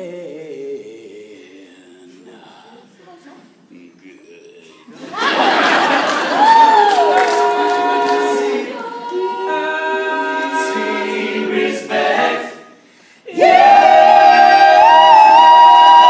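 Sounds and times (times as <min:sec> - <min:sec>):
male a cappella group singing: 0:00.0 - 0:02.9, 0:06.8 - 0:15.8.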